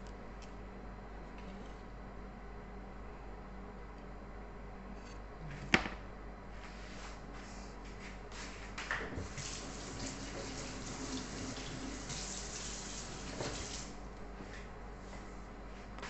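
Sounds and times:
tap running into sink: 0:09.1 - 0:13.8.

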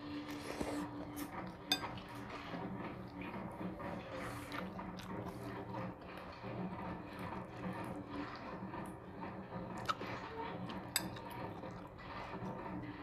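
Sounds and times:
chewing: 0:00.0 - 0:13.0
metal spoon clinking ceramic bowl: 0:01.7 - 0:02.0, 0:11.0 - 0:11.2.

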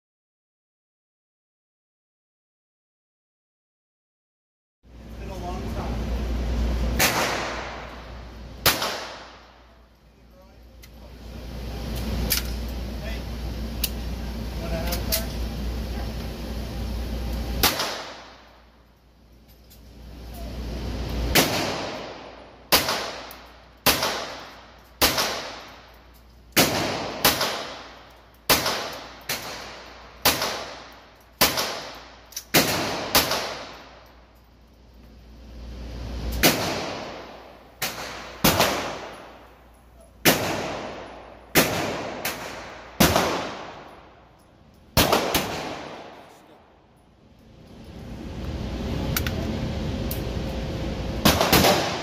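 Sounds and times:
pistol shots ringing indoors: 0:07.0 - 0:09.8, 0:17.6 - 0:18.6, 0:21.3 - 0:25.9, 0:26.5 - 0:34.1, 0:36.3 - 0:39.5, 0:40.2 - 0:44.4, 0:45.0 - 0:46.7, 0:51.2 - 0:52.0.

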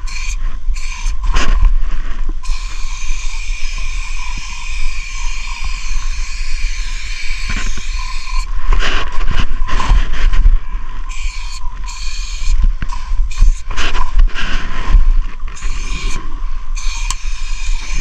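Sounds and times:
spray paint can hissing: 0:00.0 - 0:01.6, 0:02.4 - 0:08.5, 0:11.1 - 0:14.1, 0:15.5 - 0:16.2, 0:16.8 - 0:18.0.

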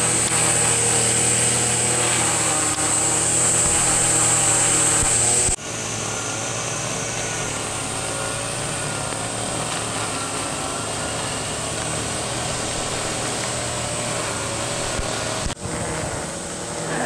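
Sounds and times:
brush cutter engine running: 0:00.0 - 0:17.0
cicadas droning: 0:00.0 - 0:17.0.

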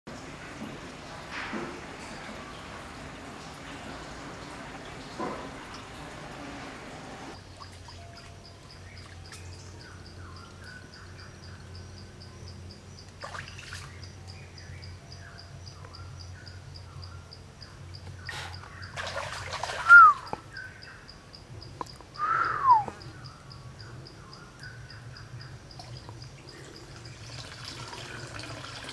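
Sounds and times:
birds chirping: 0:01.0 - 0:28.0
bird calls falling in pitch: 0:22.2 - 0:23.0.

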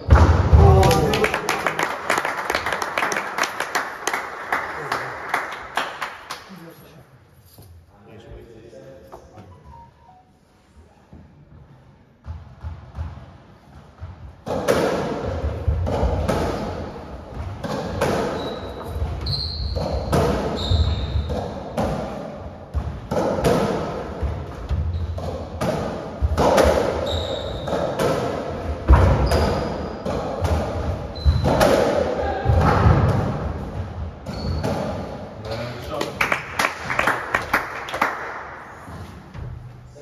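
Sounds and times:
shoes squeaking on wooden floor: 0:18.0 - 0:21.5, 0:26.9 - 0:28.0, 0:29.0 - 0:30.1, 0:34.3 - 0:34.9.

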